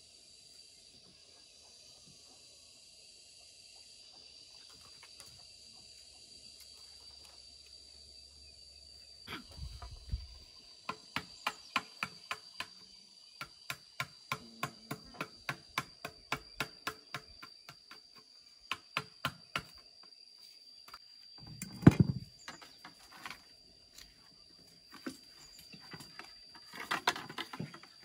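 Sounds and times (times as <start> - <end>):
insects droning: 0.0 - 28.0
tool knocking on bamboo: 10.9 - 12.8, 13.4 - 18.1, 18.7 - 19.8, 21.6 - 22.7.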